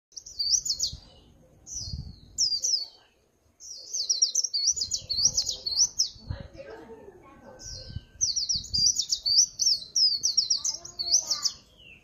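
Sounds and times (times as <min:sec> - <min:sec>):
bird twittering warbles: 0:03.7 - 0:06.3, 0:07.6 - 0:12.0.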